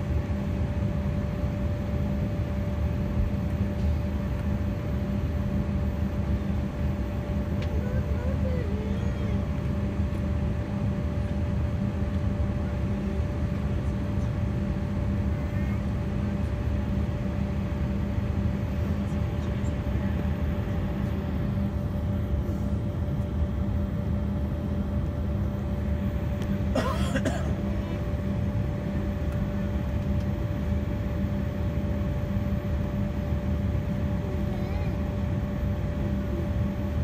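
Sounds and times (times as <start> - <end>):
jet engines rumbling with whine: 0.0 - 37.0.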